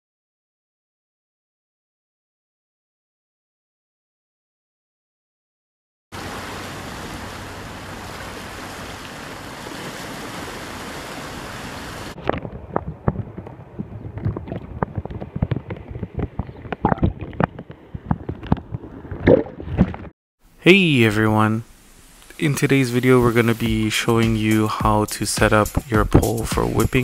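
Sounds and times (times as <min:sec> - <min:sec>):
wind: 0:06.1 - 0:24.8
muffled underwater water sloshing: 0:06.2 - 0:20.1
surf on open water: 0:06.2 - 0:20.1
underwater knocks and splashes: 0:12.2 - 0:20.1.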